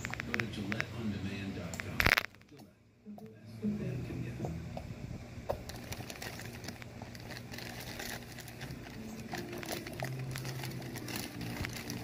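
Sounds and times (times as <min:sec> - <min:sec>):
plastic bag crinkling: 0:05.6 - 0:12.0.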